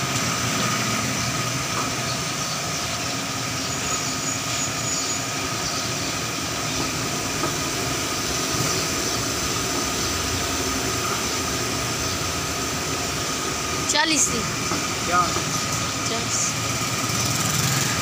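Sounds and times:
steady mechanical drone: 0.0s - 18.0s.

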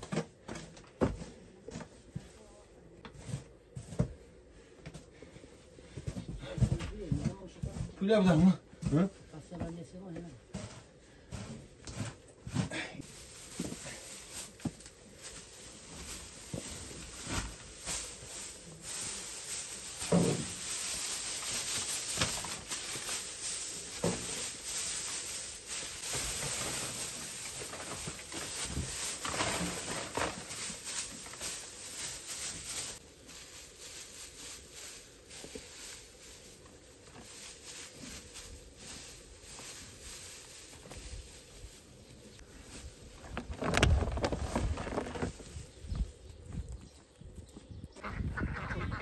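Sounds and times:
dry straw rustling: 10.6s - 47.4s.

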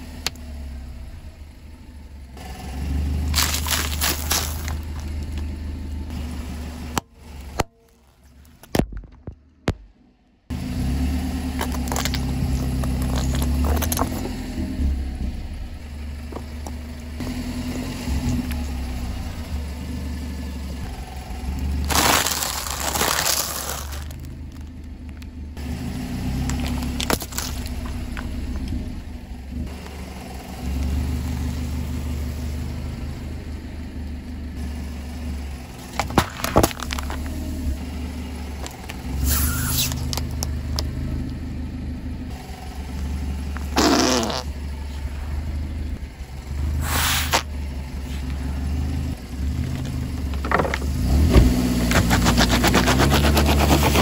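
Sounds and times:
car engine idling: 0.0s - 54.0s
objects cracking under tyre: 3.3s - 5.5s, 11.5s - 14.4s, 21.8s - 25.4s, 26.4s - 28.8s, 35.8s - 37.7s, 38.6s - 41.4s, 43.5s - 44.5s
short hissing bursts: 46.8s - 47.4s.

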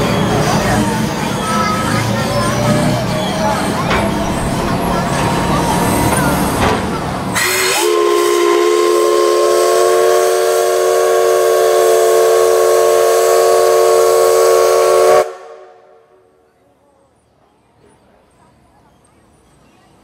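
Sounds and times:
steam whistle blast: 7.4s - 15.9s.

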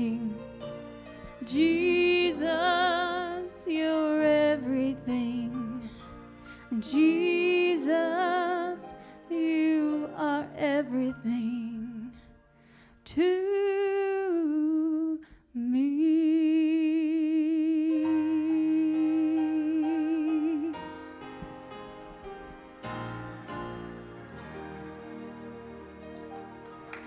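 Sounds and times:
woman singing into a microphone: 0.0s - 0.4s, 1.4s - 12.3s, 13.0s - 20.9s
quiet instrumental accompaniment: 0.0s - 13.6s, 17.6s - 27.0s.

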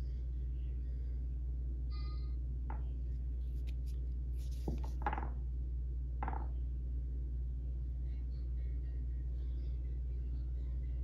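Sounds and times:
steady low hum: 0.0s - 11.0s
stone scraping and knocking: 4.6s - 5.4s, 6.2s - 6.5s.

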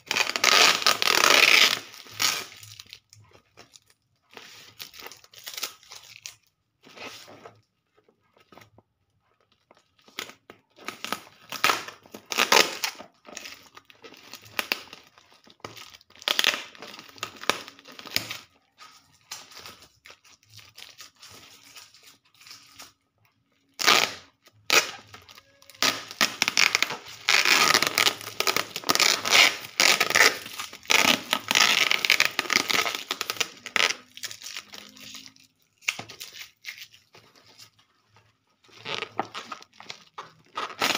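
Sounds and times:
bubble wrap crinkling and tearing: 0.0s - 8.8s, 9.5s - 40.9s
packing tape pulled off: 23.8s - 37.1s.

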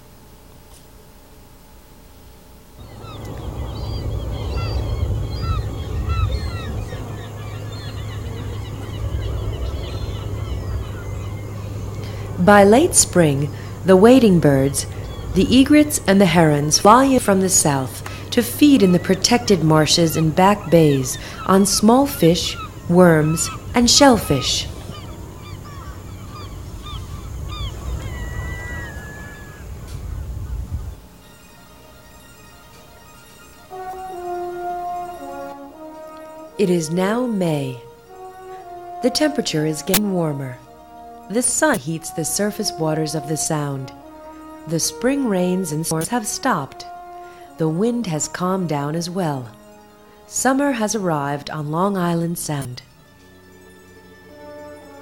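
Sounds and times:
steady low hum: 0.0s - 55.0s
many birds calling: 2.8s - 55.0s.

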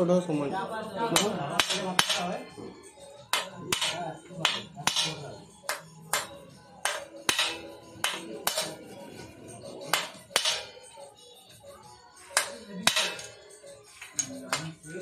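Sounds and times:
hammer striking steel ring: 3.3s - 8.8s, 9.9s - 10.7s, 12.4s - 13.4s.

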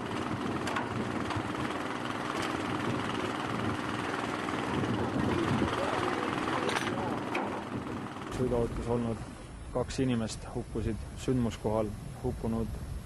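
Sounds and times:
small engine running: 0.0s - 9.4s.

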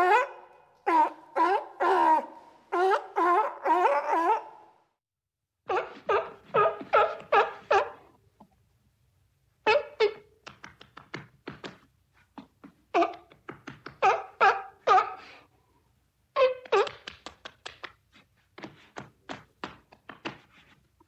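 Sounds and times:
sea lion barking: 0.0s - 4.7s, 14.0s - 15.4s.

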